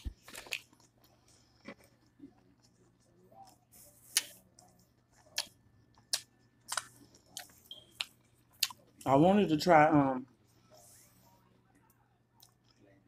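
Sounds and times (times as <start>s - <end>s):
chewing food close-up: 0.0s - 9.0s.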